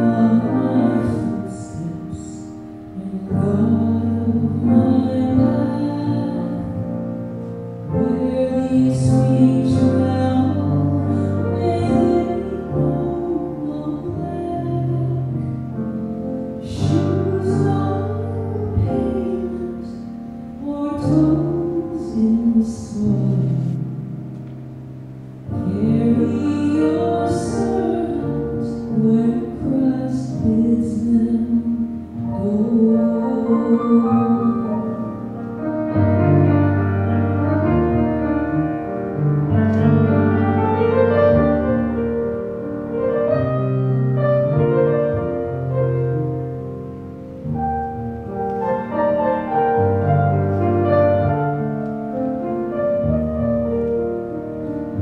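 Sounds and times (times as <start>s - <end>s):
person singing: 0.0s - 7.0s, 25.6s - 35.4s
grand piano playing slow piece: 0.0s - 55.0s.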